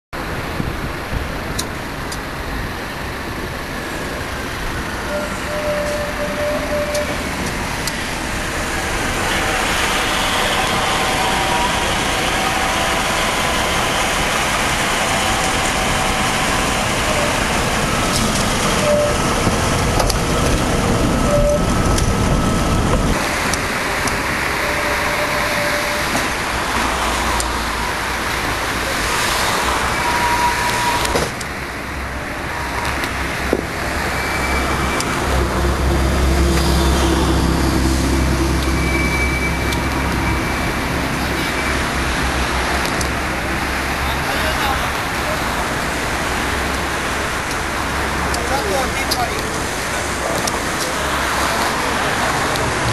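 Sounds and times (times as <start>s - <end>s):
street traffic noise: 0.1s - 52.9s
tram wheels on rails: 0.2s - 52.9s
thin high tones: 5.1s - 19.4s.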